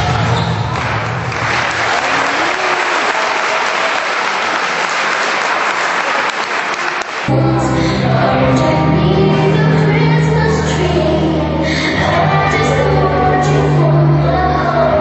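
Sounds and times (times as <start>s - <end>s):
audience clapping: 0.7s - 7.3s
music with heavy bass: 7.3s - 15.0s.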